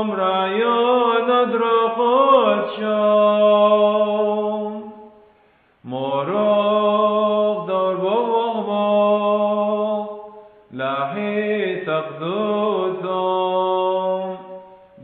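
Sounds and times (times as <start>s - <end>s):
person chanting a hymn: 0.0s - 5.2s, 5.8s - 15.0s.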